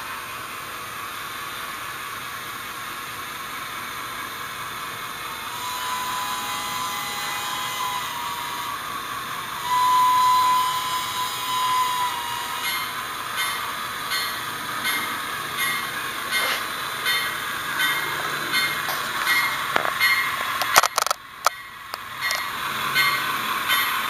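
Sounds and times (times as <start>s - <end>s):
model train steam hiss: 0.0s - 14.0s
model train whistle: 5.3s - 13.0s.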